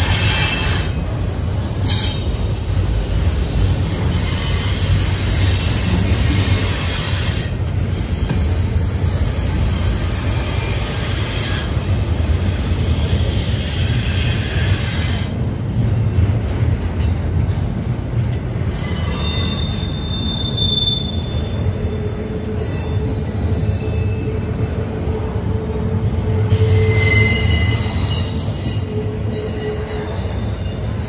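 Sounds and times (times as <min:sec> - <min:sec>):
train cars rumbling: 0:00.0 - 0:31.0
high wheel squeal: 0:03.9 - 0:09.4, 0:18.5 - 0:21.8, 0:26.3 - 0:31.0.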